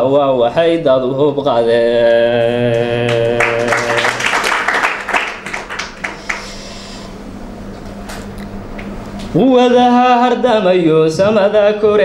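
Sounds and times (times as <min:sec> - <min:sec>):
man chanting a long note: 0:00.0 - 0:04.5
audience clapping: 0:02.5 - 0:06.6.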